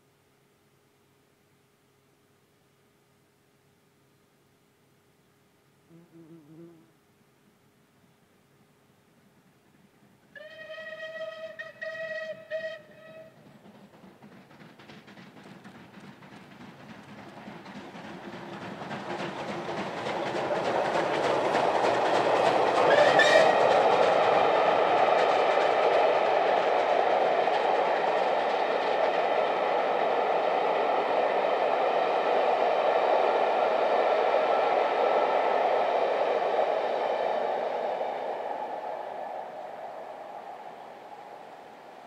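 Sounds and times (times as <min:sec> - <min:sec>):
steam locomotive passing: 0:09.8 - 0:42.0
wheels on rails: 0:10.4 - 0:42.0.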